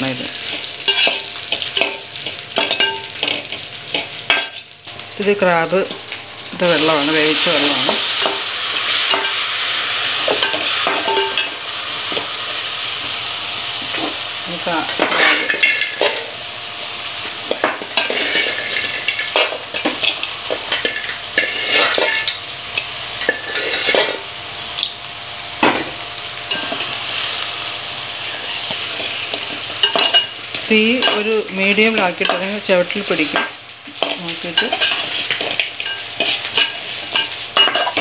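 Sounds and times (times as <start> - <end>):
food sizzling: 0.0 - 38.0
metal spoon scraping a pot: 0.8 - 4.6, 17.7 - 22.4, 23.2 - 24.2.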